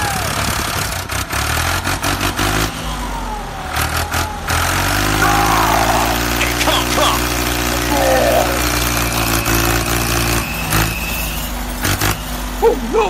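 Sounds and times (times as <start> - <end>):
truck engine revving: 0.4 - 13.0.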